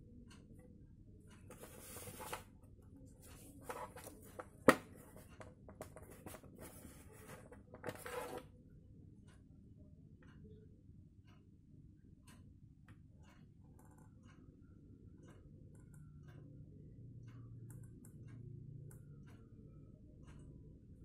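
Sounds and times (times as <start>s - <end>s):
plastic rubbing and scraping: 3.3s - 8.4s.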